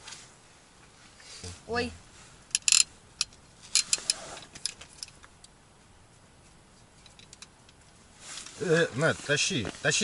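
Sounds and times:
light metallic clicks and jingles: 0:02.5 - 0:05.6, 0:06.4 - 0:08.5.

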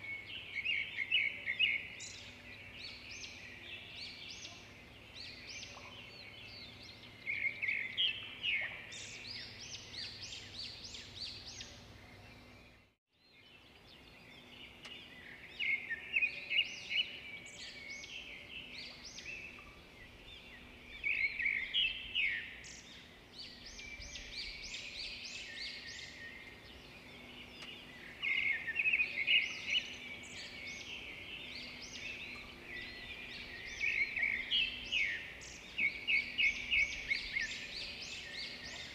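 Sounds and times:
birds chirping and chattering: 0:13.7 - 0:38.9.

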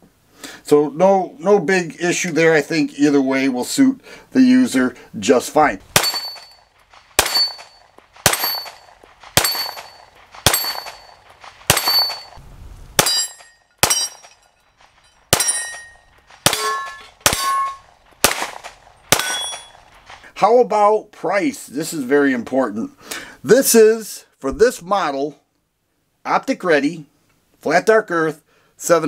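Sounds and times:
pistol shots: 0:05.9 - 0:12.4, 0:13.0 - 0:14.4, 0:15.3 - 0:20.0
ring of steel targets hit: 0:06.0 - 0:12.4, 0:13.0 - 0:19.8.

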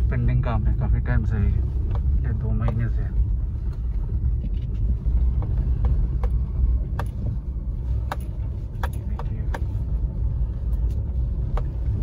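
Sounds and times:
car rumbling on dirt track: 0:00.0 - 0:12.0
sharp clicks and knocks: 0:03.7 - 0:09.8, 0:10.8 - 0:11.8.

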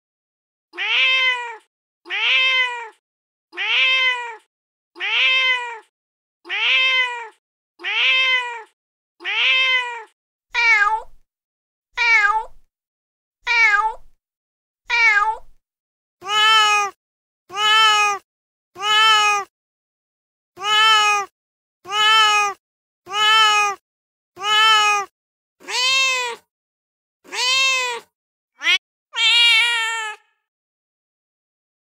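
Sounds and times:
recorded cat meows: 0:00.8 - 0:03.0, 0:03.6 - 0:05.9, 0:06.5 - 0:11.2, 0:12.0 - 0:12.6, 0:13.5 - 0:14.1, 0:14.9 - 0:15.6, 0:16.2 - 0:18.2, 0:18.8 - 0:19.5, 0:20.6 - 0:21.3, 0:21.9 - 0:23.8, 0:24.4 - 0:26.5, 0:27.3 - 0:30.4.

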